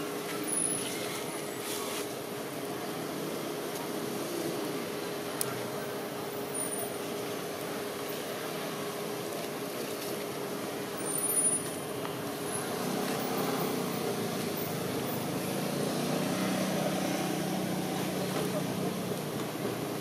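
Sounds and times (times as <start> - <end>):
vehicle engine droning: 11.0 - 20.0.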